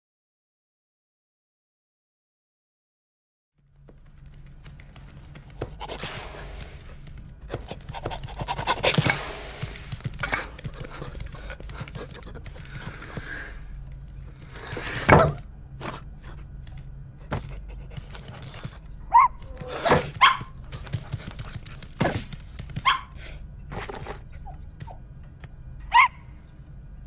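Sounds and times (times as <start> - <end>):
high dog yips: 19.1 - 20.6, 22.8 - 23.2, 24.3 - 26.3.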